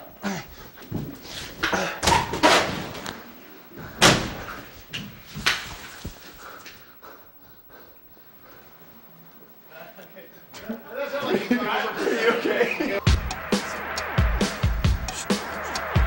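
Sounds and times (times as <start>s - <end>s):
door slamming: 4.0s - 4.6s.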